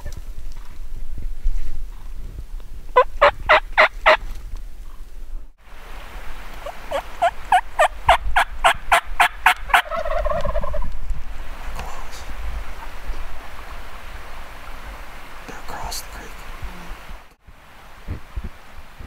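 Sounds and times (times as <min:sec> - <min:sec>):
turkey rolling call: 0:03.0 - 0:04.2, 0:06.5 - 0:10.9
turkey hen putting: 0:06.5 - 0:11.0.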